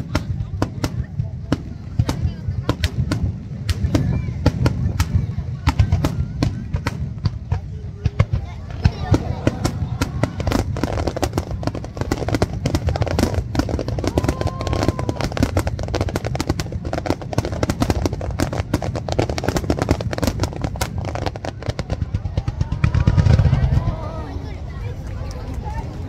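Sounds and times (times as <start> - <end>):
fireworks bursts and crackling: 0.0 - 25.8.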